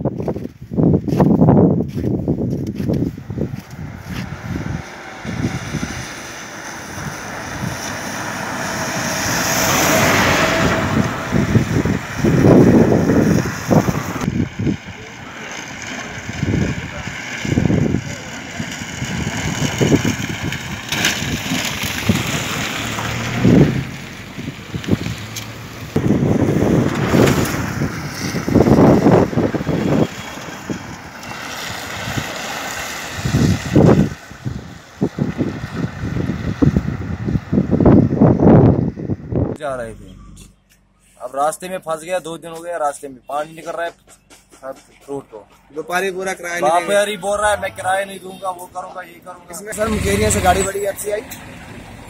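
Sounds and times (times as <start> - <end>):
wind buffeting microphone: 0.0 - 15.2, 16.1 - 39.6
car passing rumble: 1.1 - 52.0
tyres hissing on wet road: 3.8 - 37.8.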